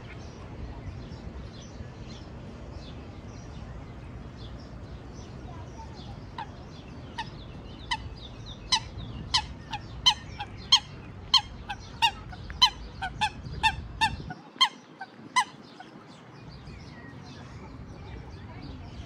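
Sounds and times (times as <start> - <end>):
water bird calling: 4.3 - 19.0.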